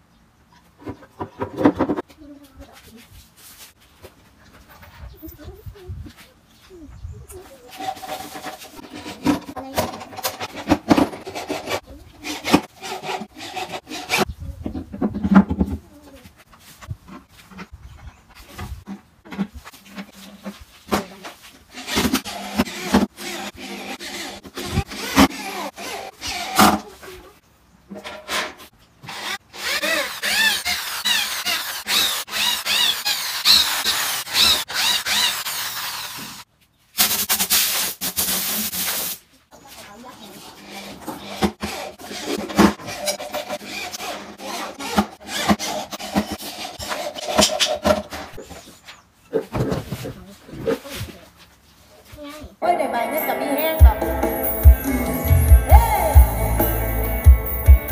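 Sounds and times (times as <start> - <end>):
wood scraping and rubbing: 7.4 - 27.2, 38.4 - 49.0
cordless drill driving screws: 21.7 - 26.8, 29.0 - 36.4, 40.8 - 47.8.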